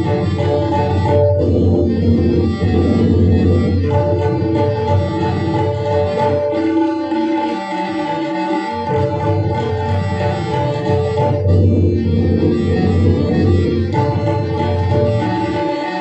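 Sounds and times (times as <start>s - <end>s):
sustained melodic accompaniment: 0.0s - 16.0s
tabla ensemble playing: 0.0s - 16.0s
low drum booming: 1.0s - 4.6s.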